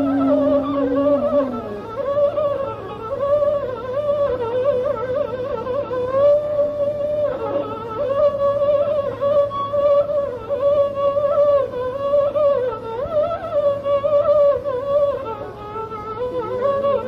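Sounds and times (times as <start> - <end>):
slow ornamented melodic line: 0.0 - 2.2.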